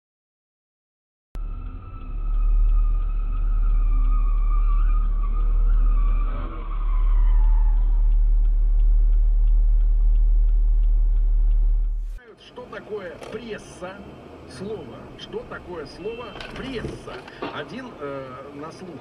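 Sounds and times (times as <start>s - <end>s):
high squeal: 1.4s - 8.4s
engine rumble: 1.4s - 19.0s
faint regular ticking: 8.0s - 12.2s.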